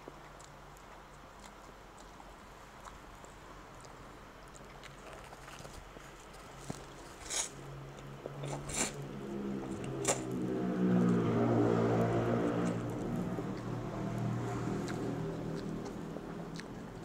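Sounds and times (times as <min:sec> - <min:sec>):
chewing: 0:00.0 - 0:17.0
engine hum: 0:00.0 - 0:17.0
noodles slurped: 0:08.4 - 0:09.0, 0:11.9 - 0:17.0.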